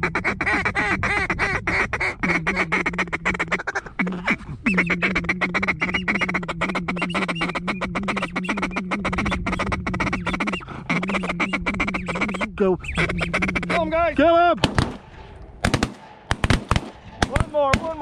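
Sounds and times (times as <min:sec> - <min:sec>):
duck calls quacking chatter: 0:00.0 - 0:14.2.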